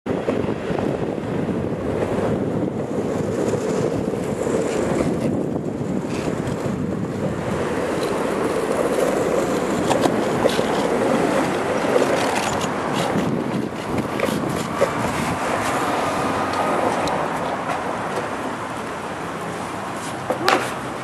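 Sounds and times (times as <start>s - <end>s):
skateboard wheels rolling on asphalt: 0.1s - 21.0s
wind on microphone: 0.1s - 21.0s.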